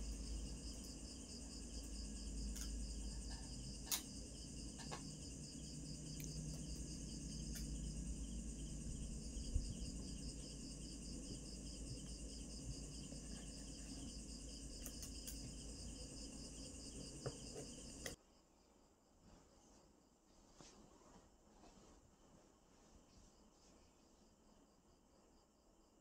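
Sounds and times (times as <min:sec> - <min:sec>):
crickets trilling: 0:00.0 - 0:18.2.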